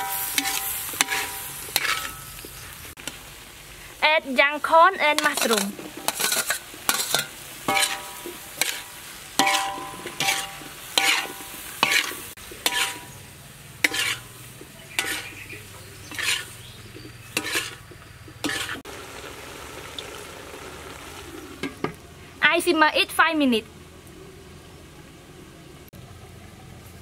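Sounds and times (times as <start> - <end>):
spatula scraping pan: 0.0 - 2.4, 5.0 - 13.2, 13.8 - 18.9
food sizzling: 0.0 - 24.9.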